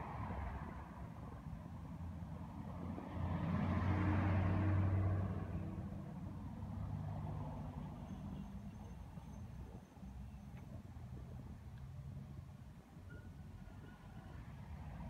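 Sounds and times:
cars driving past: 0.0 - 12.4.

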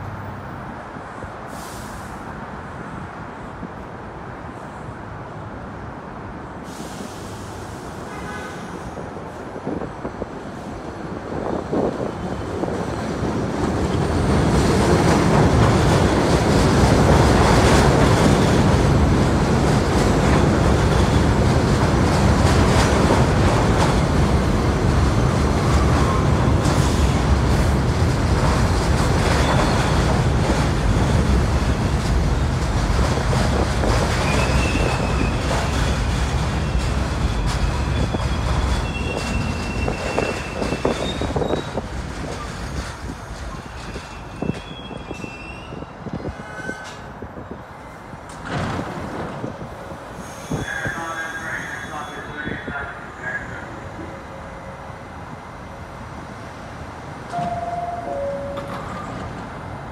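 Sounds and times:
subway train wheels on rail: 0.0 - 59.9
high wheel squeal: 34.2 - 36.0, 36.6 - 41.8, 43.5 - 47.1, 50.2 - 52.6.

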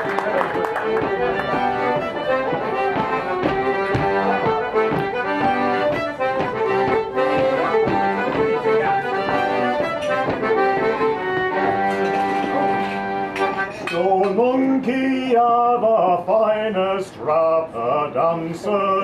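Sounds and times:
accordion dance tune: 0.0 - 13.9
sharp taps: 0.4 - 12.5.

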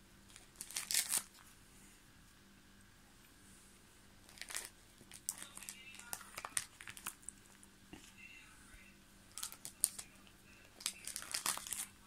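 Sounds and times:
plastic sleeves crinkling: 0.3 - 1.5, 4.2 - 8.1, 9.3 - 12.0.

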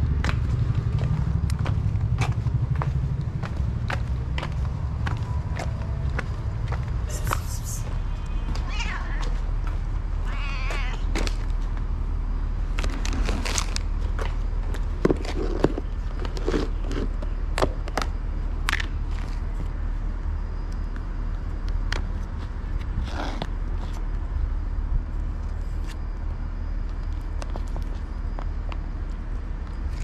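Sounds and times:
steady low rumble: 0.0 - 15.1.

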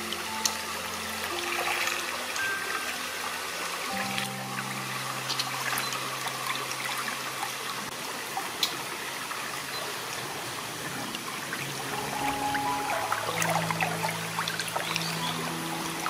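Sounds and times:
stream trickling over rock: 0.0 - 16.0.

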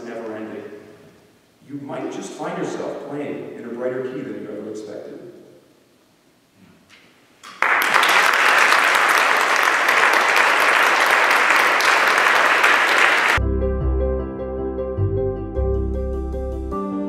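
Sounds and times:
audience applauding: 7.4 - 13.4
calm instrumental keyboard music: 13.4 - 17.0.

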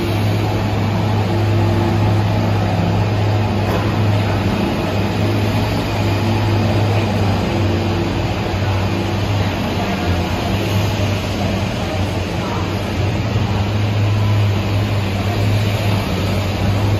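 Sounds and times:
subway train low hum: 0.0 - 16.9.

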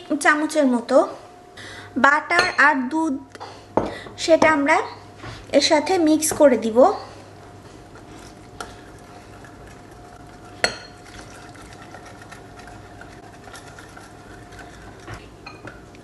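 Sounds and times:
faint steady hum: 0.0 - 16.0
batter whisked in a bowl: 6.9 - 15.7
utensil clinking against bowl: 8.0 - 15.8.

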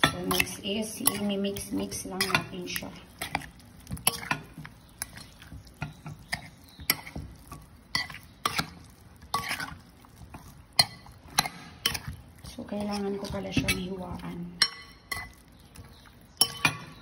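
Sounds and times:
spoon clinking against glass bowl: 0.0 - 2.6, 14.6 - 17.0
wet sounds of meat being turned: 0.0 - 17.0.

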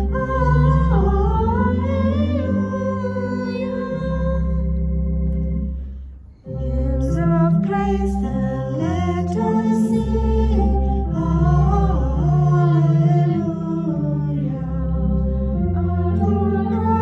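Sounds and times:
hymn singing: 0.0 - 5.4, 6.5 - 17.0
low accompanying tones: 0.0 - 17.0.

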